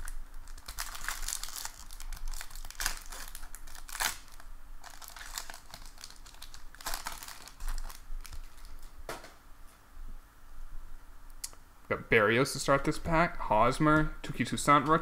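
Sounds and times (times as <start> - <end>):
plastic wrapper tearing and crinkling: 0.0 - 8.9.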